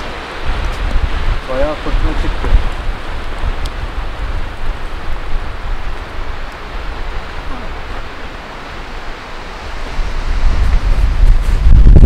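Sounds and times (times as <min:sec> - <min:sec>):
gusting wind: 0:00.0 - 0:12.0
wind buffeting microphone: 0:00.0 - 0:12.0.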